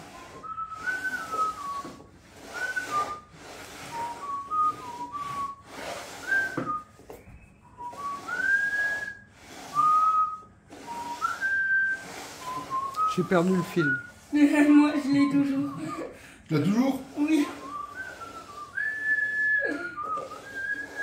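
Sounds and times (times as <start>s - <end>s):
man whistling a tune: 0.1s - 3.3s, 3.9s - 14.1s, 17.6s - 21.0s.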